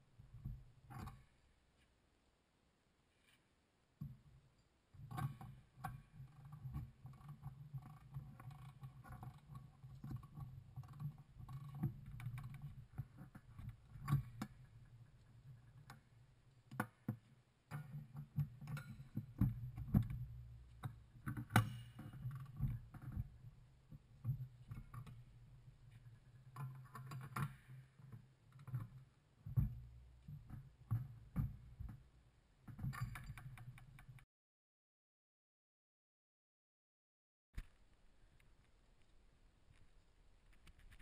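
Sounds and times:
metal tool clinks and knocks: 0:32.8 - 0:34.1.

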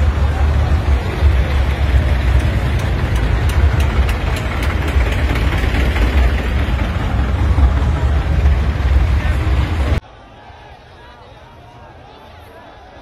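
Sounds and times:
diesel tractor engines running: 0:00.0 - 0:10.0.

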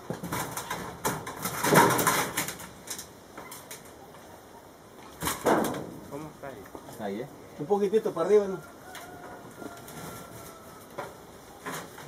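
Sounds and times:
metal roofing sheets rattling: 0:00.0 - 0:03.8, 0:05.2 - 0:06.1.

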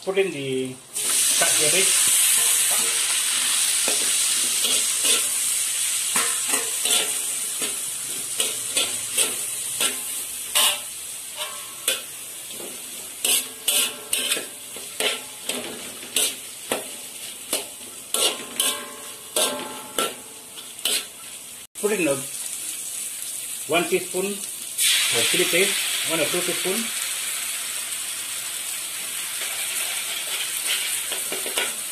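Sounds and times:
cabbage sizzling in oil: 0:00.4 - 0:31.9
spatula scraping wok: 0:01.0 - 0:21.4, 0:29.0 - 0:31.9
spatula clanking on wok: 0:02.3 - 0:03.1, 0:03.8 - 0:05.4, 0:06.1 - 0:21.1, 0:29.4 - 0:31.9.

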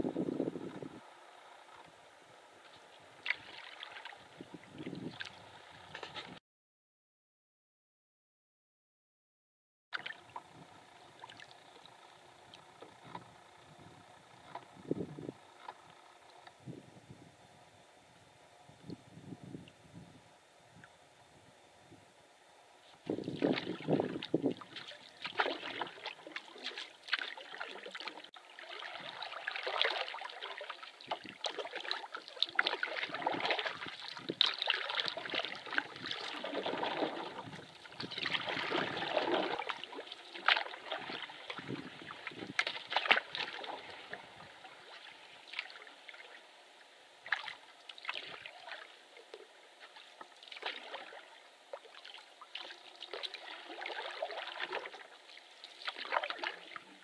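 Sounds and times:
water splashing off paddle: 0:23.1 - 0:46.3, 0:49.8 - 0:56.9.

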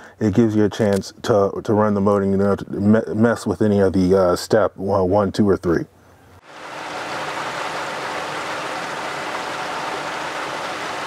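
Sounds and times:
faint steady hum: 0:00.0 - 0:11.0
pool pump rushing: 0:06.4 - 0:11.0.

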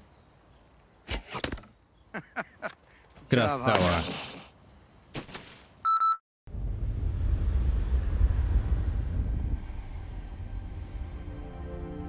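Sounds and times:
deep cinematic rumble: 0:06.5 - 0:11.9.

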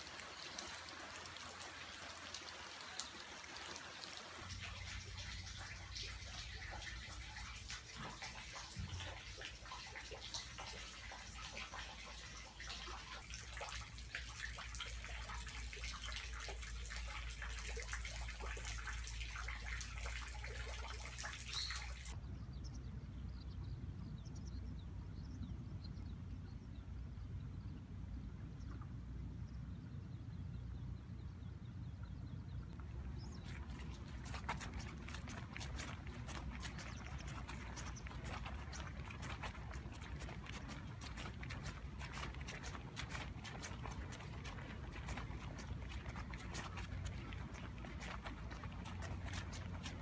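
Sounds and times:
rain falling and dripping: 0:00.0 - 0:22.2, 0:32.9 - 0:50.0.

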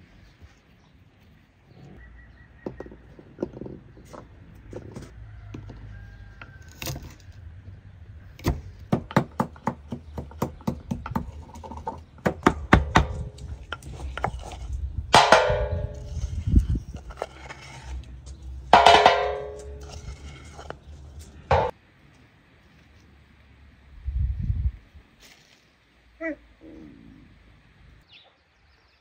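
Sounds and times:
pestle pounding in wooden mortar: 0:08.5 - 0:17.2, 0:18.7 - 0:20.4
pestle clattering on metal tray: 0:15.1 - 0:16.4, 0:18.7 - 0:20.8, 0:21.5 - 0:21.7.

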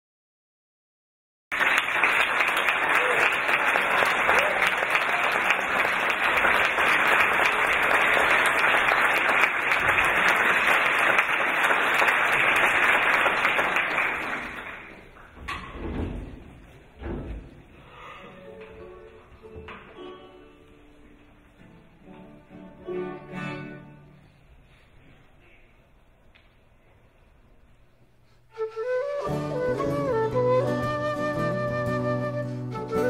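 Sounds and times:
audience applauding: 0:01.5 - 0:15.3.

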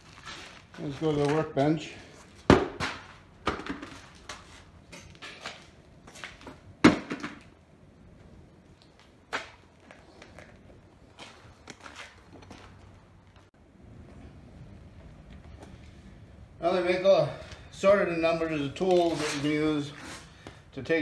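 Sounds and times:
tyre thumping on concrete floor: 0:02.4 - 0:04.4, 0:06.8 - 0:07.5.

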